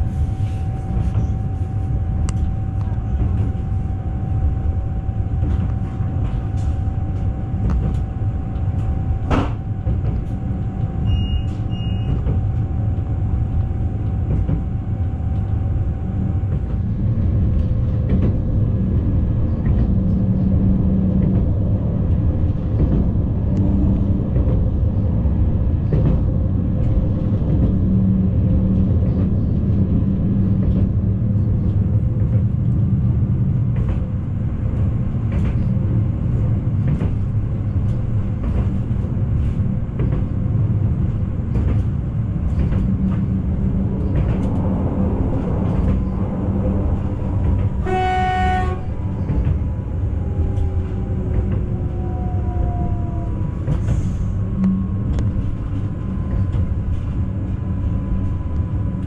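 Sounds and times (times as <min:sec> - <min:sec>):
train wheels rumbling on rails: 0:00.0 - 0:59.0
short beeps: 0:11.0 - 0:12.2.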